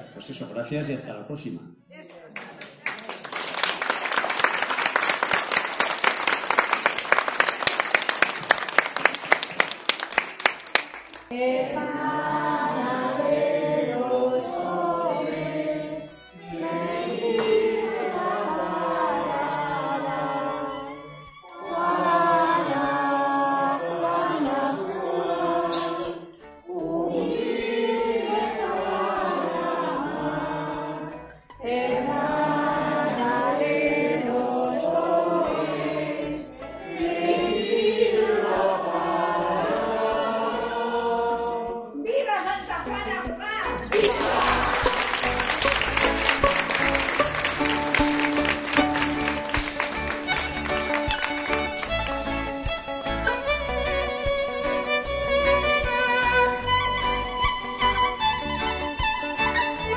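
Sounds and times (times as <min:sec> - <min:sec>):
choir singing: 0:11.3 - 0:42.1, 0:43.8 - 0:52.6.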